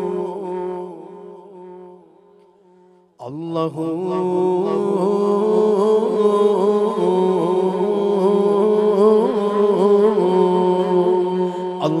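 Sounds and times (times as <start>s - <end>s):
man singing long note: 3.2s - 12.0s.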